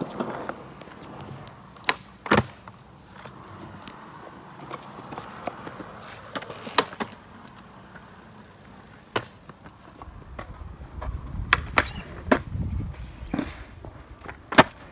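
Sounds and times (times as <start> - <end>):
skateboard clacking on concrete: 0.0 - 14.9
skateboard wheels rolling rumble: 0.0 - 14.9.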